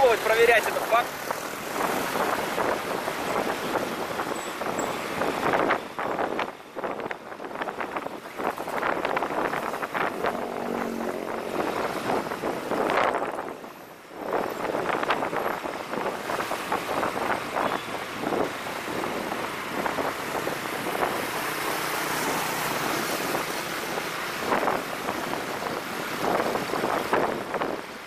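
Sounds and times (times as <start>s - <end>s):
road noise: 0.0s - 28.0s
wind buffeting microphone: 0.2s - 28.0s
motorbike engine: 9.5s - 13.2s.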